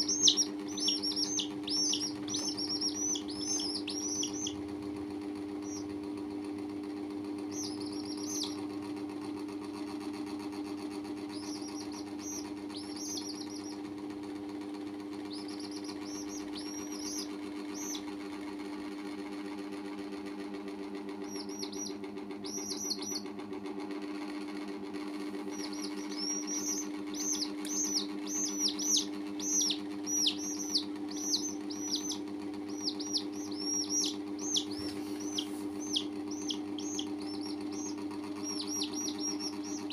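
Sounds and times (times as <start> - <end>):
low steady hum: 0.0 - 8.9, 11.2 - 18.1, 25.0 - 39.9
chicks peeping: 0.0 - 18.4, 21.0 - 23.4, 25.0 - 39.9.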